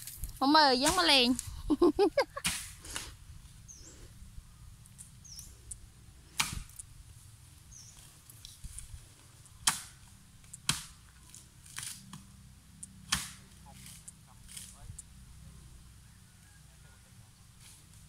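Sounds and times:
blade chopping bamboo: 0:06.4 - 0:06.8, 0:09.6 - 0:10.0, 0:10.6 - 0:12.3, 0:13.1 - 0:14.7.

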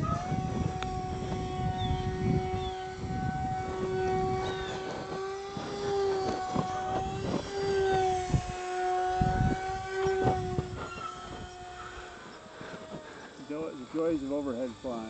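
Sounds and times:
model plane motor humming: 0:00.0 - 0:15.0.

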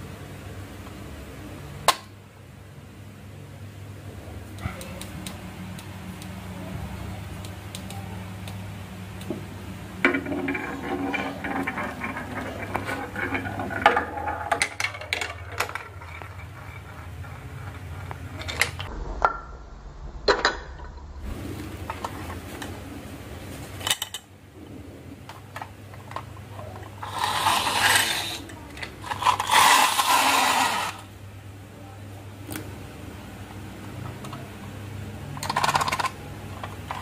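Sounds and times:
marbles rolling on wooden track: 0:10.0 - 0:18.9, 0:25.6 - 0:31.0, 0:35.4 - 0:37.0.

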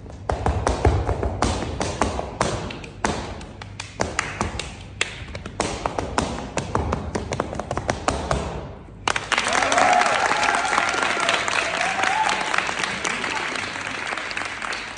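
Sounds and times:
hard shoes stamping on floor: 0:00.0 - 0:04.8, 0:05.4 - 0:08.6
applause: 0:09.0 - 0:14.9
person cheering: 0:09.4 - 0:13.8.

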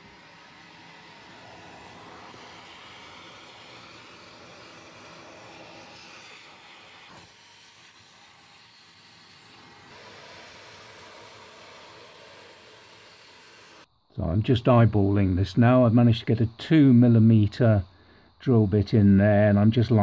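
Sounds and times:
vacuum cleaner running: 0:00.0 - 0:13.9.

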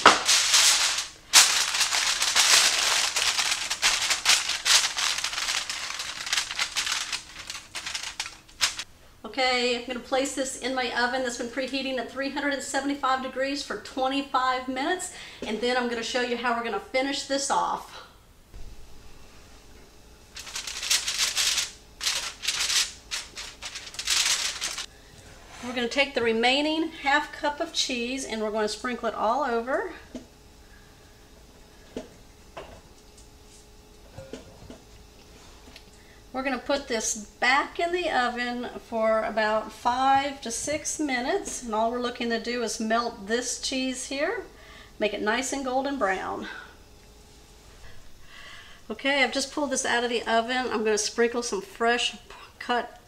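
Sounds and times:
aluminium foil crinkling: 0:00.0 - 0:08.9, 0:20.3 - 0:24.9.

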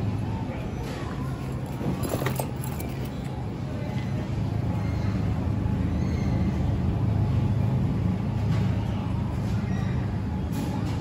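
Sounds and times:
shopping cart rolling: 0:00.8 - 0:03.5.

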